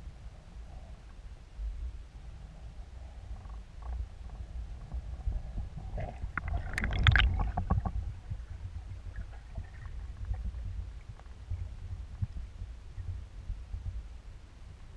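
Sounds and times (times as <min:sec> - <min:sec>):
underwater low rumble: 0:00.0 - 0:14.9
bubbling crackling clicks: 0:06.0 - 0:08.1.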